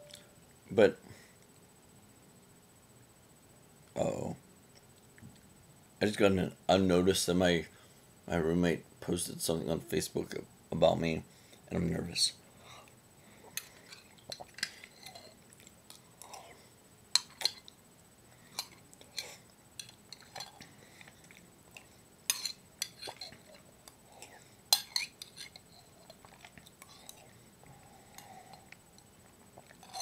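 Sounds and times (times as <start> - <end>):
chewing and lip-smacking: 25.2 - 27.4.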